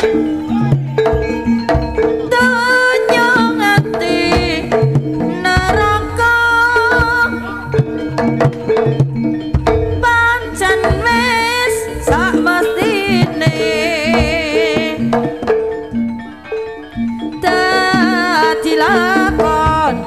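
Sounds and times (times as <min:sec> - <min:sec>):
hand drum strokes: 0:00.0 - 0:16.2
metallic pitched notes: 0:00.0 - 0:20.0
wavering melody line: 0:00.0 - 0:20.0.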